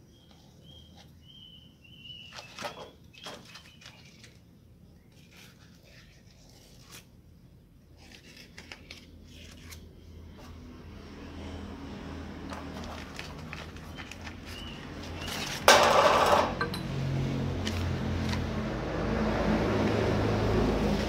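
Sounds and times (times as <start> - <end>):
stiff paper rustling and crinkling: 2.2 - 7.2, 7.9 - 9.9, 12.4 - 15.8, 17.5 - 18.7.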